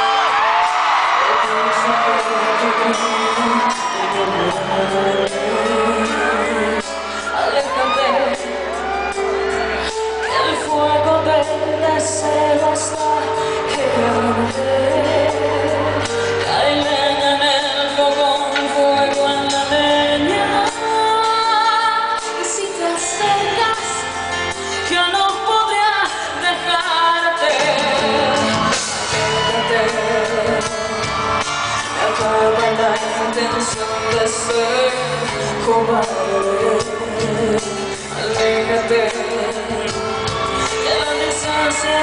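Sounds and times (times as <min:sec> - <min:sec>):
band playing: 0:00.0 - 0:42.0
woman singing pop ballad: 0:00.0 - 0:42.0.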